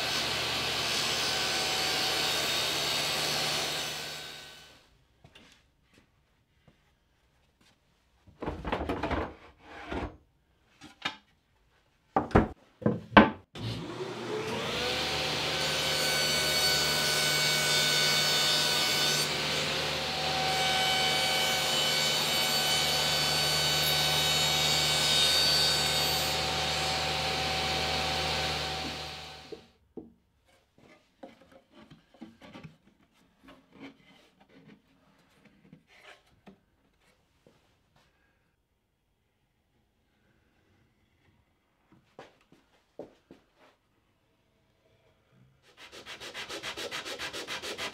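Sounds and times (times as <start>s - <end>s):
table saw motor whine: 13.6s - 29.7s.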